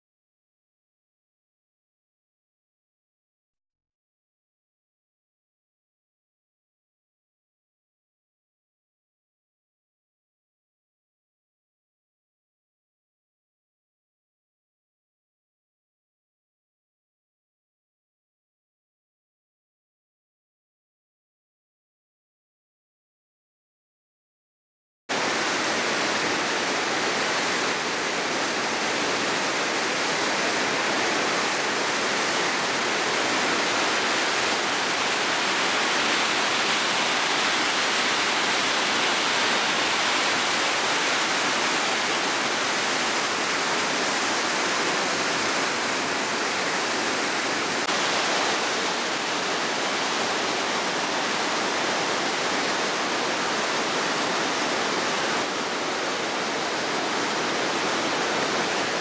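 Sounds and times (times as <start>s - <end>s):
river water rushing over rapids: 25.1s - 59.0s.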